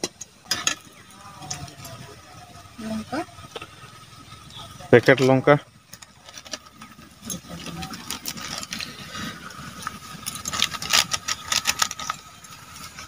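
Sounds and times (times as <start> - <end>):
plastic packet crinkling: 10.3 - 12.5.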